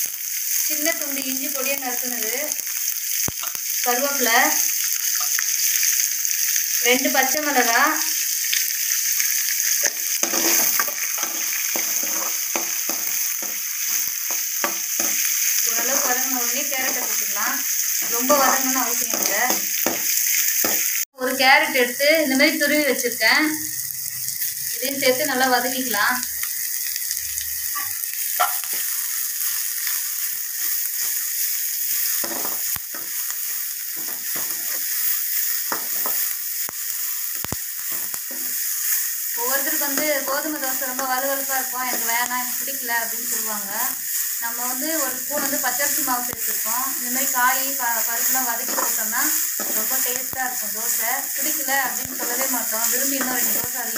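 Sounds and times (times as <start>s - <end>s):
vegetables sizzling in hot oil: 0.0s - 53.9s
spoon scraping against pan: 9.2s - 20.9s, 27.7s - 30.0s, 48.2s - 50.2s
spatula scraping a metal pan: 10.1s - 15.3s.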